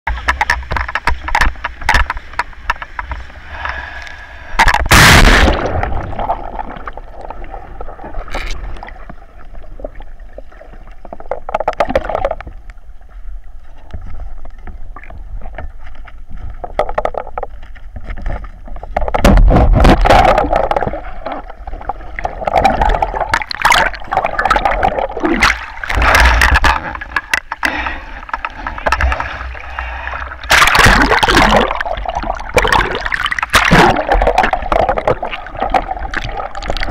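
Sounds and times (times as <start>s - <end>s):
sea water splashing and gurgling: 0.1s - 36.9s.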